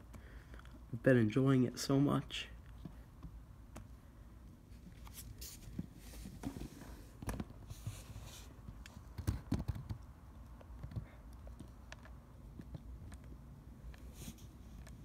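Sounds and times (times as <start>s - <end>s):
soft rustle: 4.6s - 9.1s, 13.9s - 15.0s.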